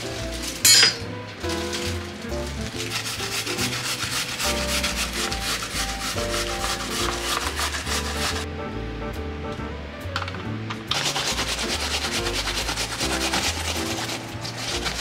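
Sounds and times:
background music: 0.0s - 15.0s
yam scraping on grater: 1.6s - 8.5s, 10.9s - 15.0s.

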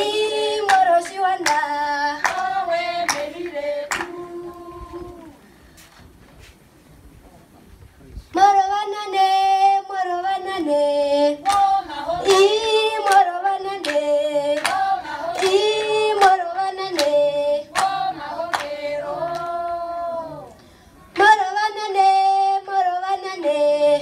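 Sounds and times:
group singing in harmony: 0.0s - 5.5s, 8.6s - 24.0s
sharp hand claps: 0.6s - 4.2s, 11.4s - 12.4s, 13.0s - 19.6s.

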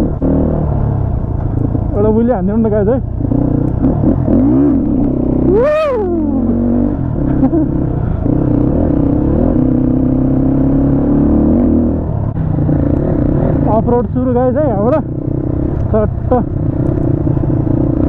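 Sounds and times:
motorcycle engine revving: 0.0s - 18.0s
motorcycle engine running: 0.0s - 18.0s.

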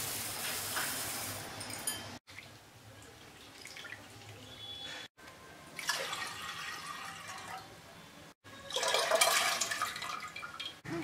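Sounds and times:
water pouring into pot: 5.8s - 7.7s, 8.7s - 10.8s.

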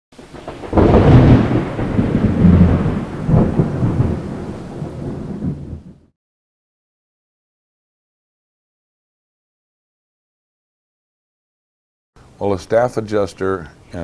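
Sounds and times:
rain hiss: 0.2s - 5.8s, 12.2s - 14.0s
thunder crack: 0.2s - 6.1s
thunder rumble: 0.2s - 6.1s.

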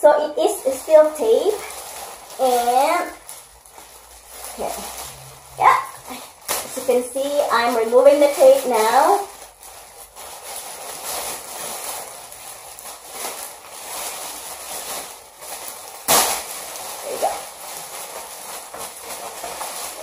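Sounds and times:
bubble wrap and tape crinkling: 0.0s - 20.0s
sharp snap: 16.1s - 16.5s.

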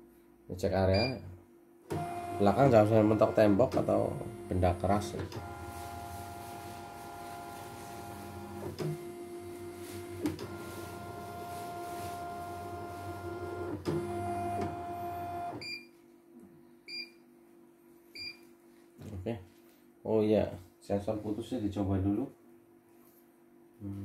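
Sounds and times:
embroidery machine motors whining: 1.9s - 15.6s.

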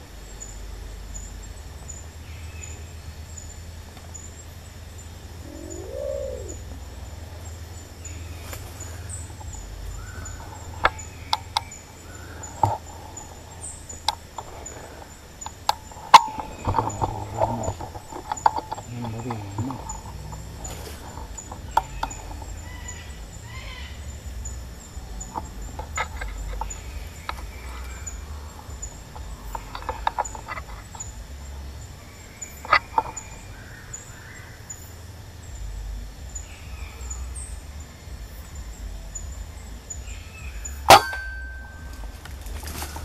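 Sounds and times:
low wind rumble: 0.0s - 43.0s
faint clicks: 3.9s - 4.5s, 5.4s - 33.8s.

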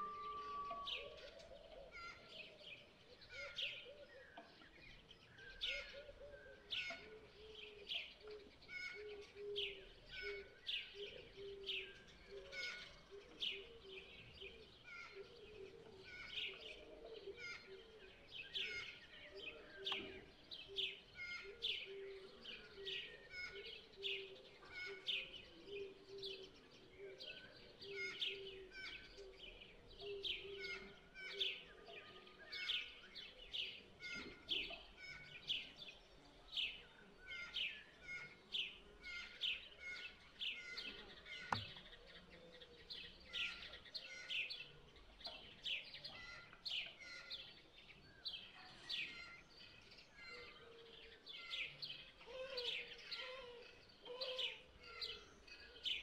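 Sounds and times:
sparrows chirping: 0.0s - 56.0s.

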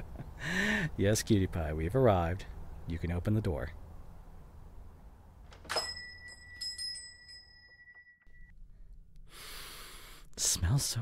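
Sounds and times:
shop-door bell ringing: 5.6s - 8.5s.

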